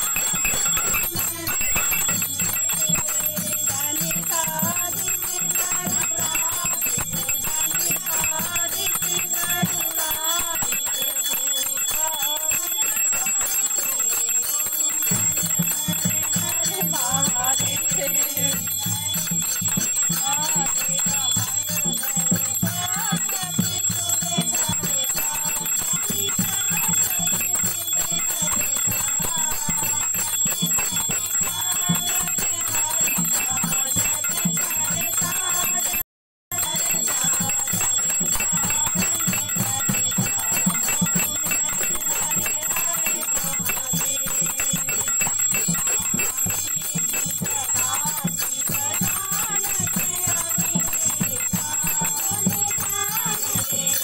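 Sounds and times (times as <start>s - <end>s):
bell rung continuously: 0.0s - 54.0s
rhythmic beat: 0.0s - 54.0s
women singing devotional song: 0.0s - 54.0s.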